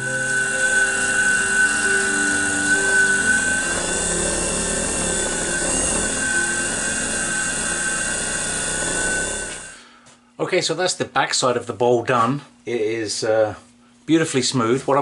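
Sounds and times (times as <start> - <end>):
cloth buffing wax: 0.0 - 9.8
wood lathe high whine: 0.0 - 9.9.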